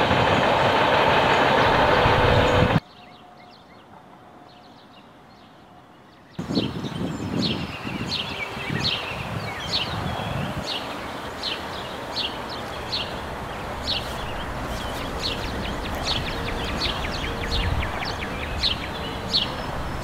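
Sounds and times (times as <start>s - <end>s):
songbird chirping: 1.6s - 20.0s
rain hissing: 8.9s - 20.0s.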